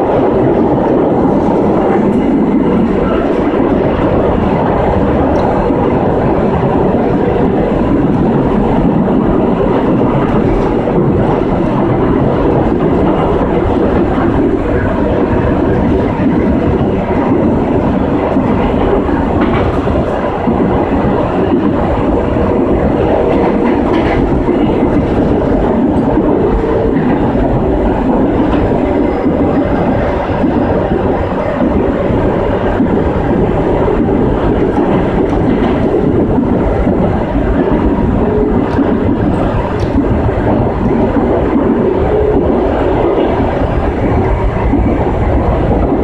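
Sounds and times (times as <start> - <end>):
rumble of wheels on rail: 0.0 - 46.0.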